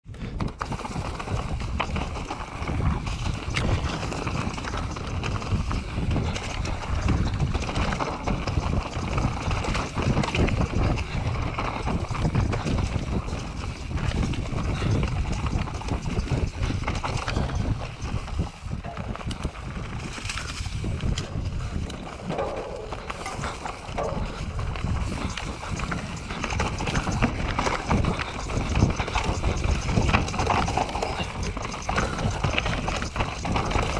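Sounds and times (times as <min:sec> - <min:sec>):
wind rumble on microphone: 0:00.0 - 0:33.9
bike rattling and clattering: 0:00.1 - 0:33.9.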